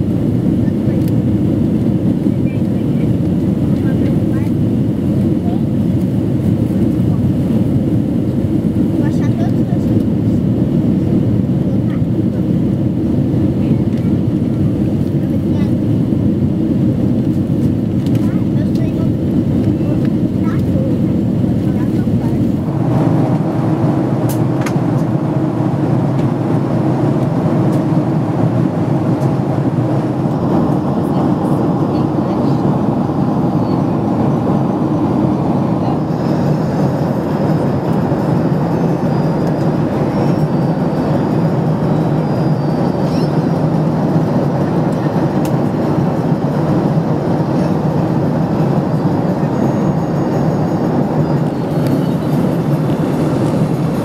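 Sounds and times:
airplane cabin engine rush: 0.0 - 54.0.

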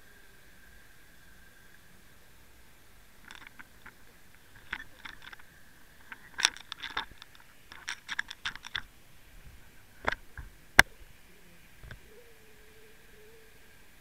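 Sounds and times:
faint steady whine: 0.0 - 14.0
underwater clicks and ticks: 3.2 - 8.9, 10.0 - 10.9.

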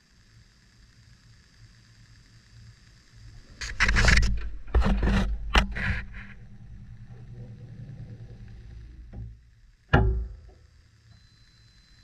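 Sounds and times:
washing machine drum humming: 5.6 - 10.6.

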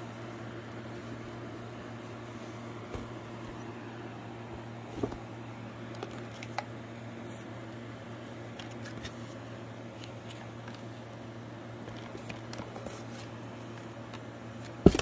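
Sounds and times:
low room hum: 0.0 - 15.0
light taps and paper rustles: 2.8 - 3.6.

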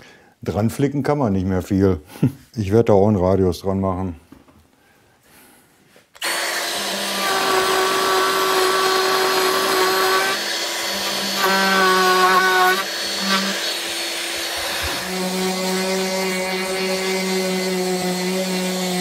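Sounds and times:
dust extractor running: 6.2 - 15.2
router motor whine: 6.2 - 19.0.

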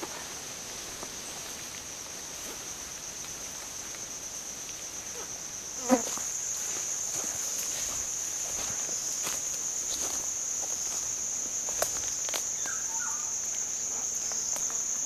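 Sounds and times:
high-pitched insect drone: 5.0 - 15.0
footsteps through undergrowth: 6.0 - 13.6.

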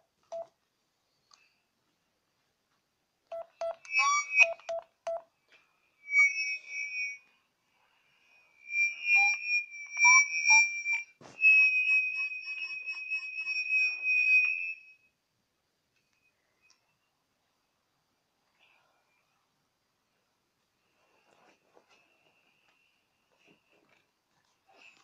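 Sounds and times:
short electronic beeps: 3.3 - 5.2, 6.1 - 7.2, 8.6 - 14.8
steady high tone with chirping flutter: 3.4 - 4.7, 5.9 - 15.1
high whistling tones with chirps: 3.4 - 4.8, 6.0 - 15.1.

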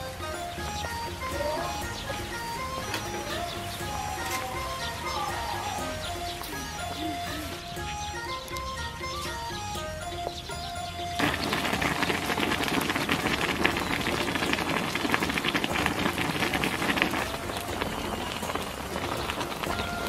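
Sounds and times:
broth bubbling and popping: 11.2 - 20.0.

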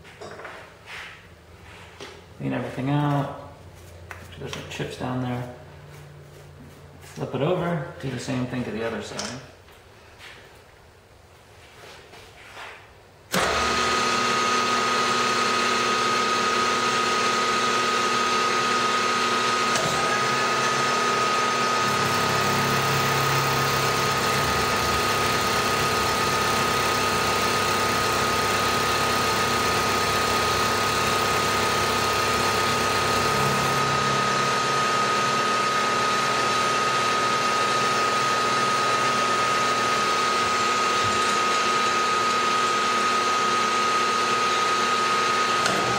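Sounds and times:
face mill cutting metal: 13.3 - 45.9
milling machine spindle whine: 13.3 - 45.9.

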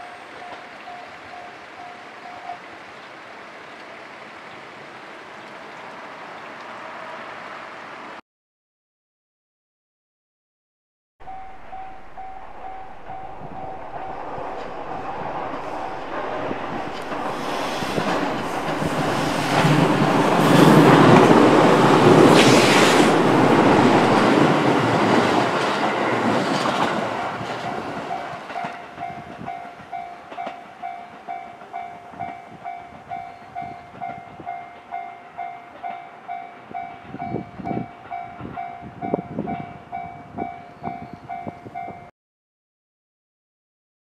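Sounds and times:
electric train passing: 0.0 - 8.2, 11.2 - 41.8
level-crossing alarm bell: 11.2 - 26.4.

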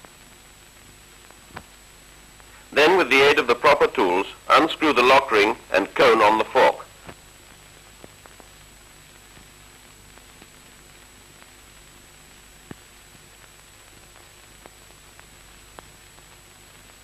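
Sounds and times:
faint clicks and pops: 0.0 - 2.6, 7.0 - 11.9, 12.5 - 17.0
film soundtrack hiss: 0.0 - 17.0.

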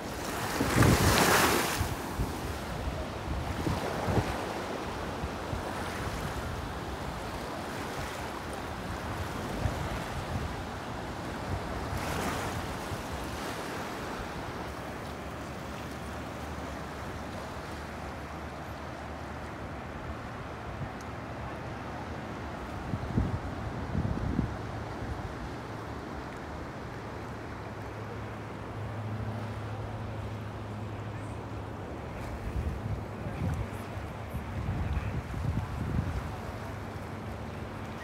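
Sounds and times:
wind rumble on microphone: 0.0 - 14.7, 20.0 - 28.8, 31.5 - 38.0
waves breaking on sand: 0.0 - 38.0.

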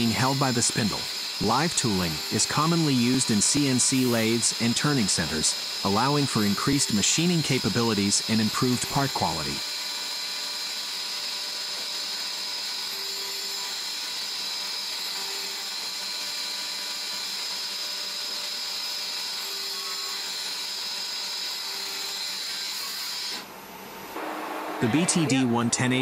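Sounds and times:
machine hum: 23.4 - 26.0.

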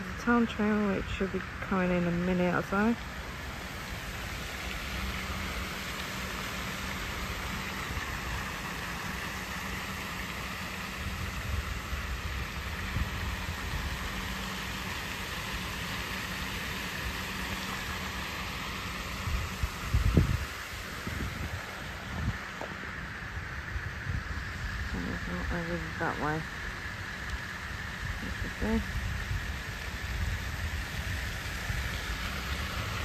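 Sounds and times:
distant traffic hum: 0.0 - 33.0
even hiss: 0.0 - 33.0
wind buffeting microphone: 19.2 - 26.4.

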